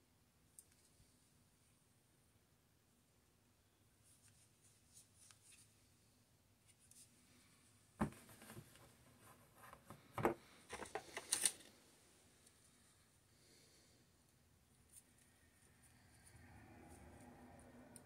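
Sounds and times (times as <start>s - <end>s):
object set down with knock: 8.0s - 8.7s
cables clicking and rustling in box: 9.7s - 11.8s.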